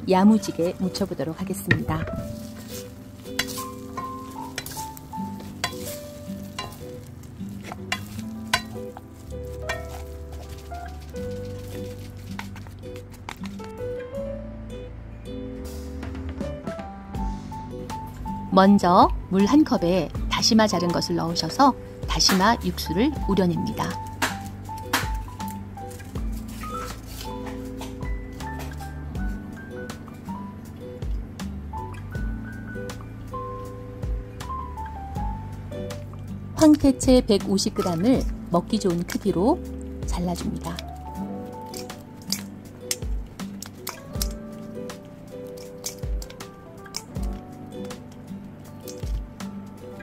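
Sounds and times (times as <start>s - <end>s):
soft background music: 0.0s - 50.0s
sticky stirring and scraping: 0.5s - 13.8s, 23.7s - 29.4s, 37.8s - 49.4s
soft low thump: 1.6s - 2.4s.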